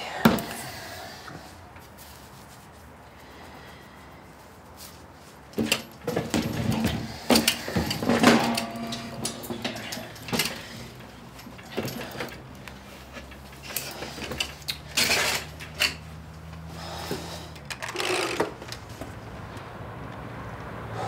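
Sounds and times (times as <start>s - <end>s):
things being handled: 4.7s - 19.2s.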